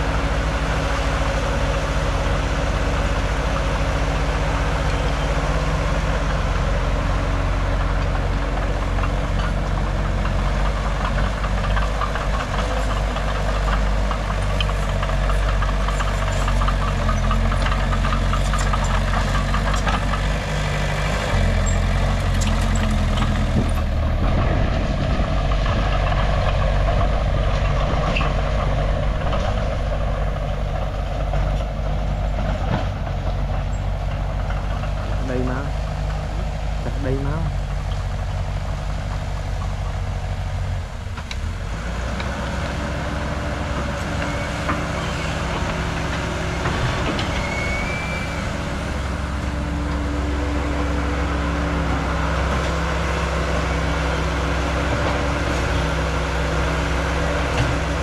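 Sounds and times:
excavator diesel engine running: 0.0 - 58.0.

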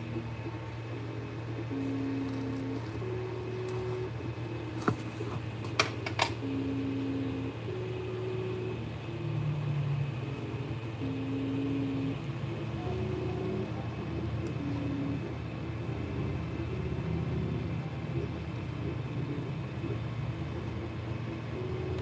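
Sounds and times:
stepper motors whining: 0.0 - 5.7, 6.4 - 22.0
cooling fans humming: 0.0 - 22.0.

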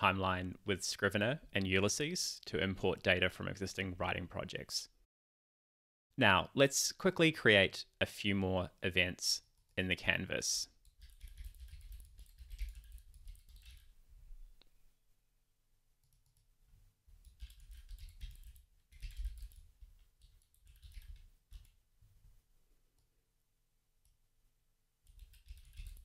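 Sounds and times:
keyboard typing: 10.8 - 13.9, 16.0 - 16.5, 17.2 - 21.8, 25.0 - 26.0.

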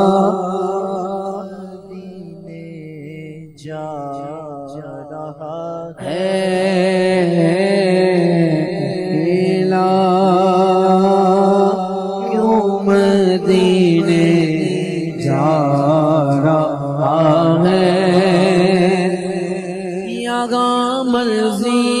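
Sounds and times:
man singing into a microphone: 0.0 - 22.0.

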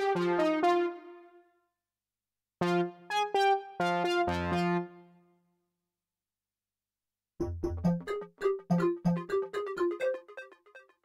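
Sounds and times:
synth brass notes and chords: 2.6 - 5.1.

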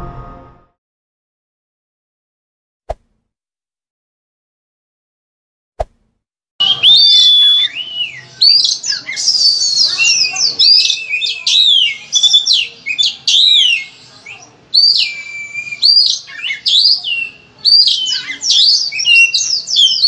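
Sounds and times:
songbird singing loudly: 6.6 - 20.0.

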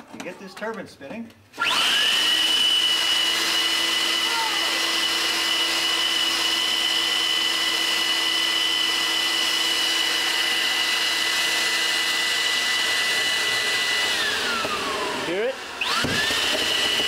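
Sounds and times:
leaf blower rushing air: 1.6 - 17.0.

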